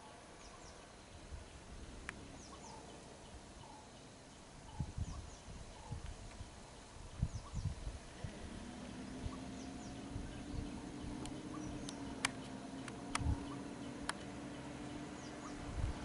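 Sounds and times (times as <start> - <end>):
faint bird chirps: 0.0 - 1.6, 2.2 - 6.1, 6.7 - 16.0
vehicle engine idling: 0.0 - 5.4, 6.7 - 16.0
sharp clicks: 11.2 - 13.4, 14.0 - 14.3.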